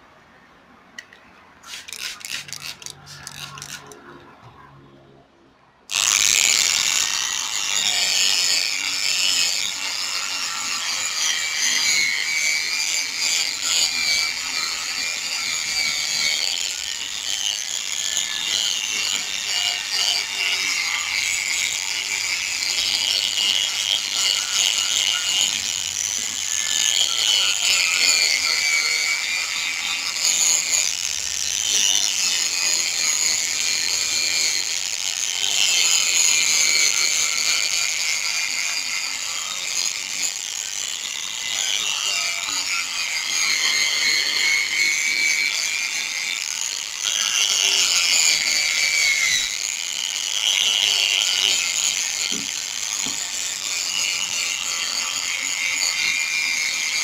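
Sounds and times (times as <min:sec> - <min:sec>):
power sander whining: 0:01.0 - 0:04.6, 0:05.9 - 0:57.0
gritty scrubbing: 0:01.6 - 0:04.4.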